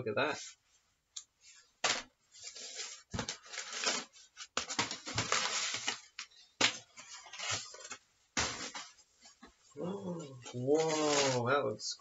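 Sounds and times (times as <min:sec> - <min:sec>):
packing paper rustling: 0:01.9 - 0:09.0, 0:10.7 - 0:11.4.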